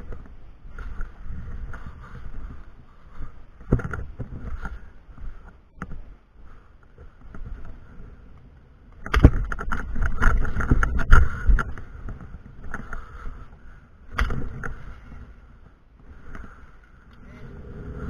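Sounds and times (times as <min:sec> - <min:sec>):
wind rumble on microphone: 0:00.0 - 0:18.0.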